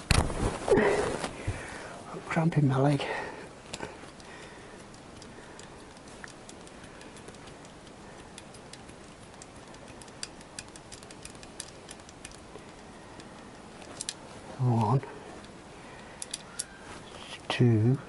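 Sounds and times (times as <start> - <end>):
steady hiss: 0.0 - 18.0
socket ratchet clicking: 4.1 - 12.4.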